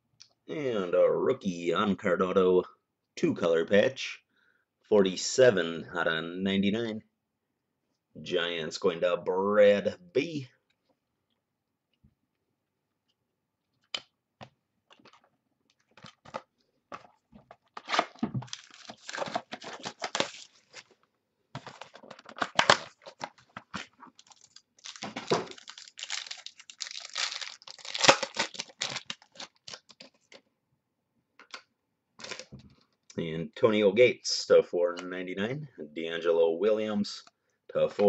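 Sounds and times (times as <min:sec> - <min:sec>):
card pack wrapper tearing: 0:17.7 - 0:20.9, 0:21.6 - 0:30.4, 0:32.2 - 0:32.5.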